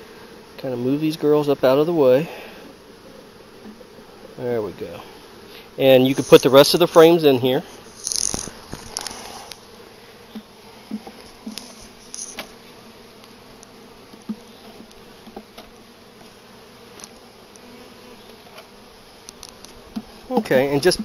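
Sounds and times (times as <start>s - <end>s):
bees buzzing: 0.0s - 21.0s.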